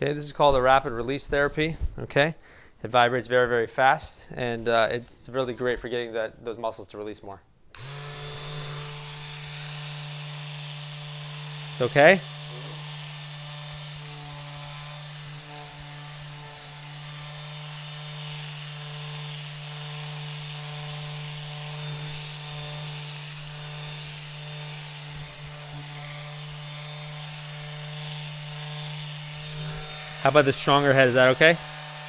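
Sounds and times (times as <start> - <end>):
vibration device buzzing: 7.7 - 32.0.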